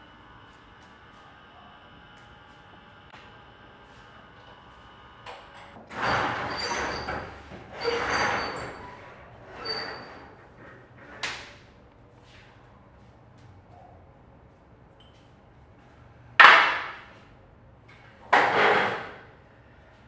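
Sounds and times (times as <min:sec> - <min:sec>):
roller shutter being hauled up: 0:05.5 - 0:11.6, 0:18.2 - 0:19.3
thin squeak: 0:06.0 - 0:10.3.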